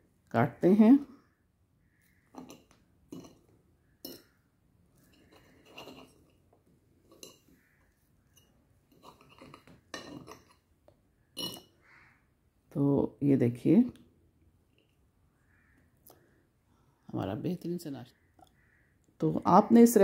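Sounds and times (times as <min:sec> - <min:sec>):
fork clinking on plate: 0:11.4 - 0:11.7.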